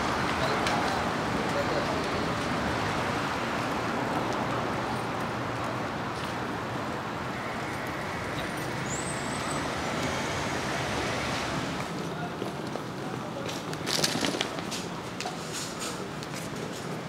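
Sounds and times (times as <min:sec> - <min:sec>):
passing cars: 0:00.0 - 0:17.0
urban hum: 0:00.0 - 0:17.0.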